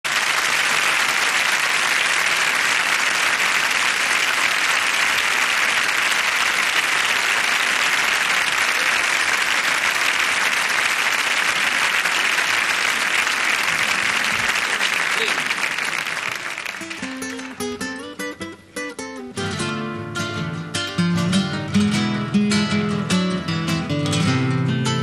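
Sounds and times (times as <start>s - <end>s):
audience applauding: 0.0s - 17.8s.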